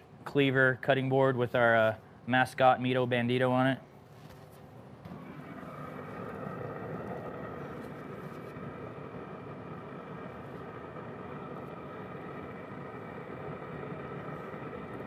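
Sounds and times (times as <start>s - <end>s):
grill fan whirring hum: 0.0s - 15.0s
faint whining tones: 3.9s - 15.0s
rush of air: 5.1s - 15.0s.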